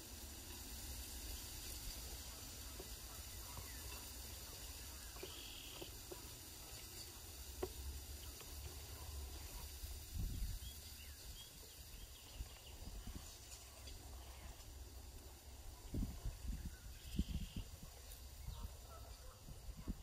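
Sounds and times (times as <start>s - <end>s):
faint bird chirps: 1.3s - 7.2s, 15.7s - 19.9s.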